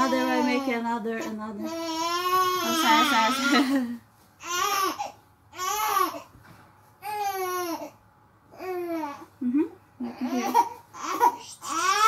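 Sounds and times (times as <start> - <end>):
baby crying: 0.0 - 0.8, 1.6 - 3.7, 4.4 - 6.3, 7.0 - 9.3, 10.0 - 12.0.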